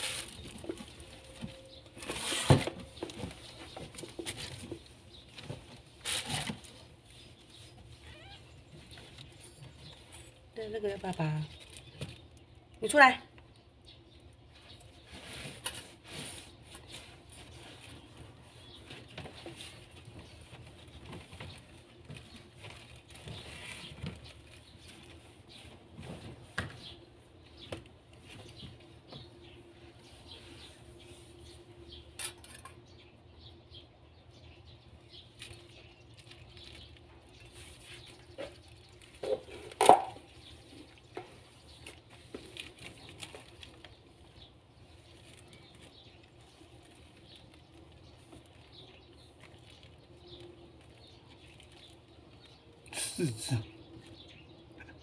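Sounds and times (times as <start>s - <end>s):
kittens rustling: 0.0s - 32.4s, 34.5s - 54.8s
faint kitten squeaks: 7.9s - 8.6s.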